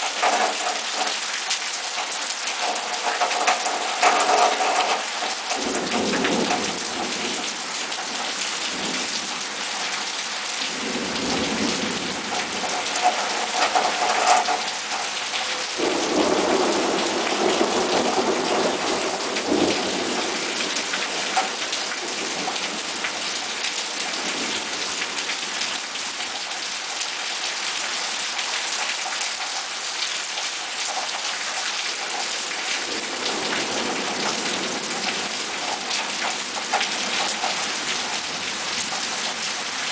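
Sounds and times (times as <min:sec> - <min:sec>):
heavy rain pouring: 0:00.0 - 0:39.9
thunder rumbling: 0:02.6 - 0:07.6, 0:10.7 - 0:14.7, 0:15.4 - 0:23.4.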